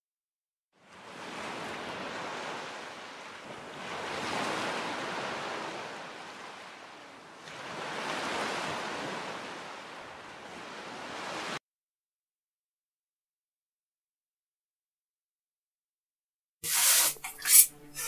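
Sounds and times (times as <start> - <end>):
ocean waves washing in: 0.8 - 11.6.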